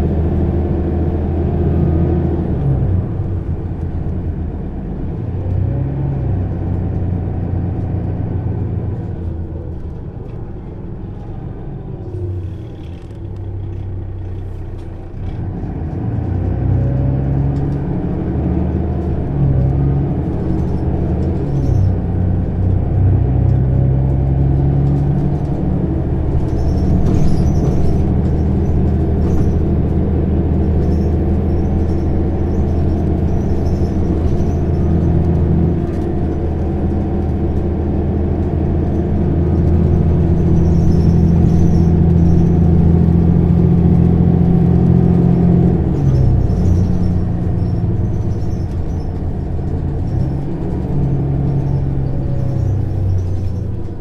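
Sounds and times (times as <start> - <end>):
bus engine accelerating: 0.0 - 54.0
interior rattles: 24.4 - 44.2, 44.8 - 54.0.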